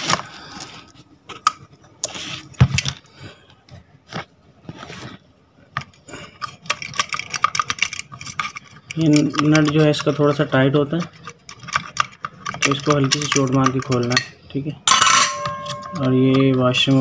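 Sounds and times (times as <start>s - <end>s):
metal parts clicking and scraping: 5.8s - 17.0s.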